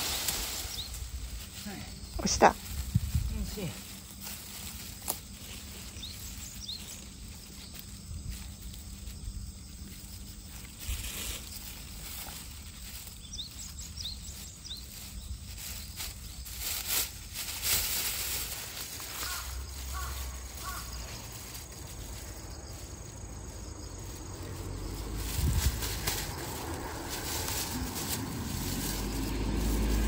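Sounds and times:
wind noise on microphone: 2.6 - 3.6, 25.2 - 26.4
plastic bag rustling: 10.1 - 22.9, 24.0 - 30.0.

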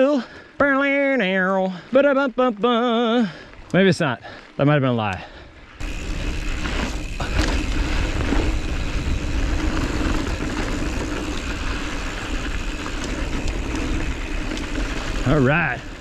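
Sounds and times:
bike tyre and drivetrain noise: 0.0 - 16.0
wind rushing on microphone: 5.8 - 16.0.

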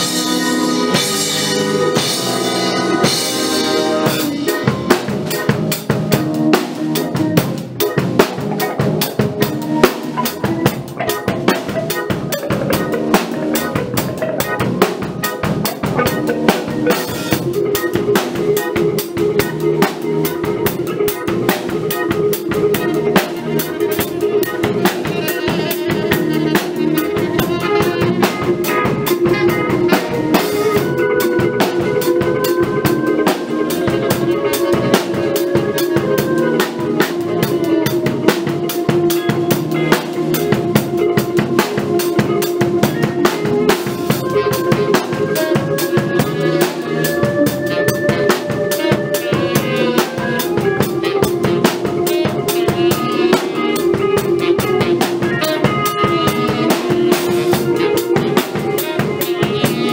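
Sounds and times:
count-in: 0.0 - 59.9
long held notes: 0.0 - 59.9
rock band playing: 0.0 - 59.9.

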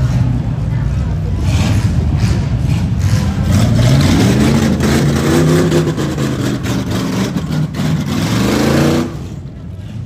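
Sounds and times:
car engine revving loudly: 1.5 - 9.4.

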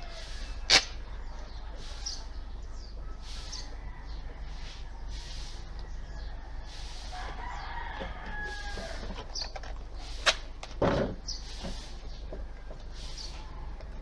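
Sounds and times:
distant rooster crowing: 0.0 - 9.5
tape ripping off roll: 0.7 - 1.0, 10.1 - 11.7.

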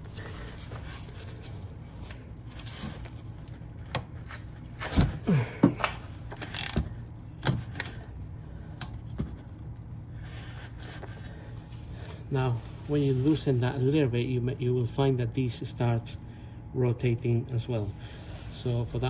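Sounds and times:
steady low hum: 0.0 - 19.0
ratchet clicking: 6.4 - 6.9.

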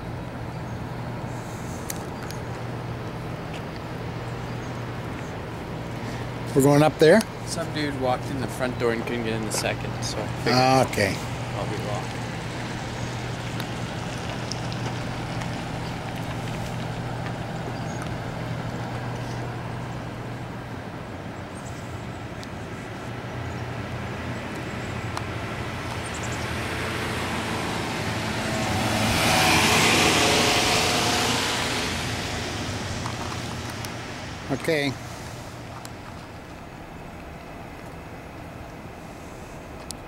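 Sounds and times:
traffic hum: 0.0 - 40.0
car driving past: 7.0 - 20.7, 24.8 - 35.7.

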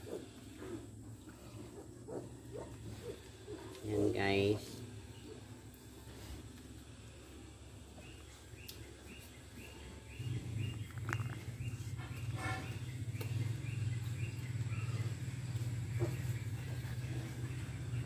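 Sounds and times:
low steady drone: 0.0 - 18.0.

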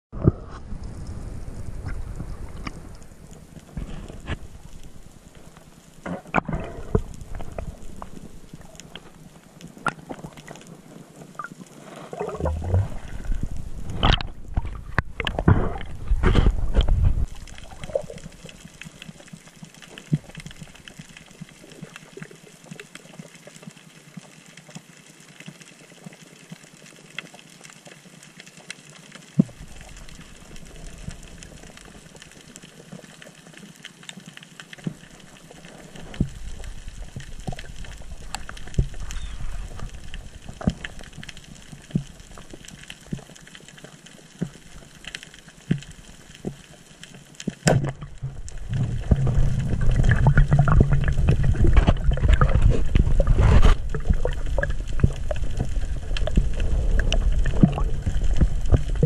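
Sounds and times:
water rushing underwater: 0.2 - 23.7, 29.3 - 59.0.

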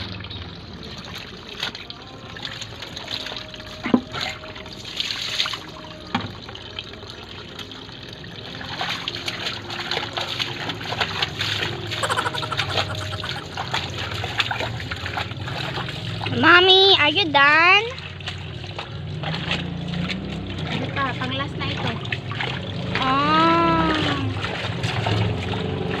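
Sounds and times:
feet treading laundry in water: 0.0 - 26.0
water pouring into washbasin: 0.0 - 26.0
water sloshing and splashing: 0.0 - 26.0.

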